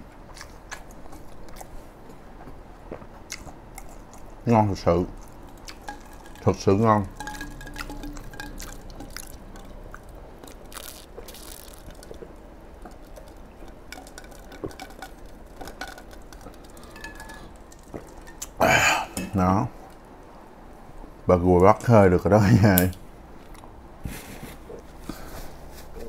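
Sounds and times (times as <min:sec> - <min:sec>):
liquid moving in glass: 0:05.2 - 0:18.4
ice cubes clinking against glass: 0:05.7 - 0:12.2, 0:12.9 - 0:18.4.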